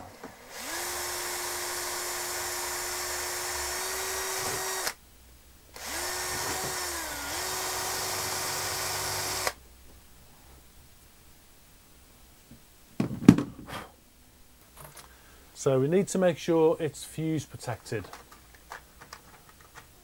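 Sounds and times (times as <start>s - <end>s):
electric drill boring into plastic: 0.4s - 5.0s, 5.8s - 9.6s.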